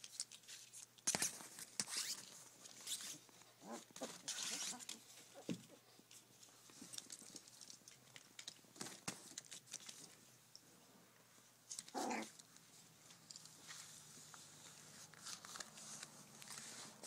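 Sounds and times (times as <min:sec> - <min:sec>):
plastic sheeting crinkles: 0:13.6 - 0:17.0.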